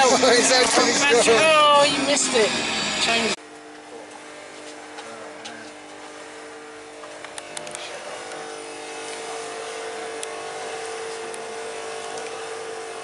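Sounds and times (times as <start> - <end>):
electric hair tool humming: 0.0 - 13.0.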